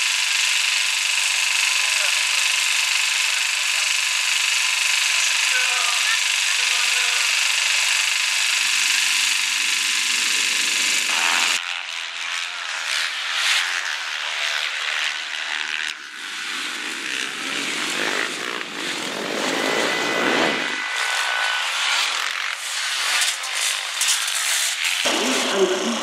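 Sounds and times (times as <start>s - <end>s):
motorcycles revving past: 14.8s - 26.0s.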